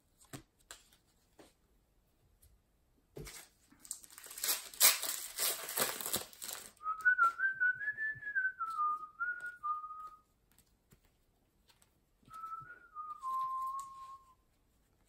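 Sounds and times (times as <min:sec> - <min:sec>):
wrapper crinkling and tearing: 0:03.3 - 0:06.8
person whistling a tune: 0:06.8 - 0:10.2, 0:12.3 - 0:14.4.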